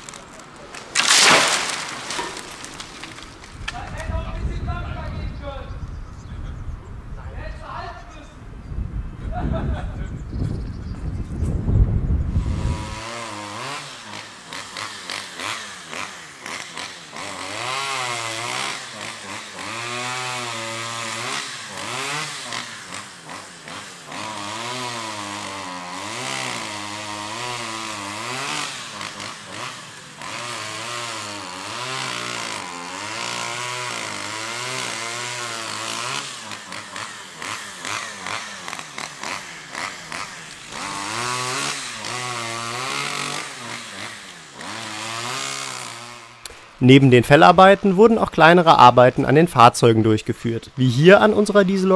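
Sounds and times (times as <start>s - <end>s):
chainsaw cutting wood: 0.0s - 4.6s, 12.2s - 47.2s.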